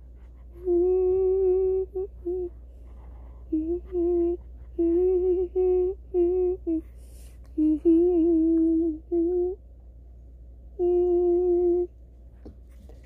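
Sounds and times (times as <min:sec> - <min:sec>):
person humming: 0:00.4 - 0:09.6, 0:10.8 - 0:11.9.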